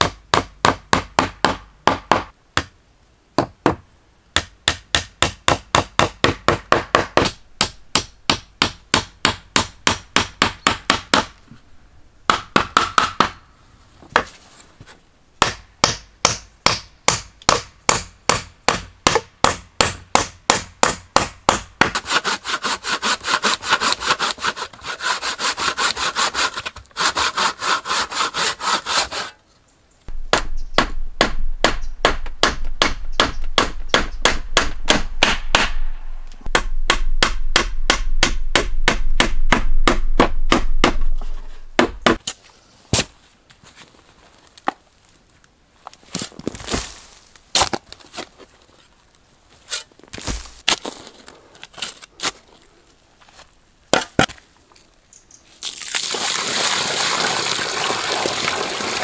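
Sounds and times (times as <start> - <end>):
hand-sawing through wood: 20.8 - 29.4
hand tool strokes on timber: 21.9 - 29.4.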